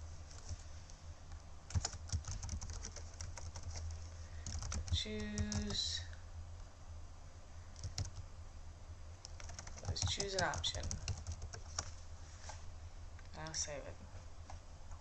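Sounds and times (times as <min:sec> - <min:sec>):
keyboard typing: 0:01.7 - 0:05.8, 0:07.8 - 0:08.2, 0:09.2 - 0:11.9.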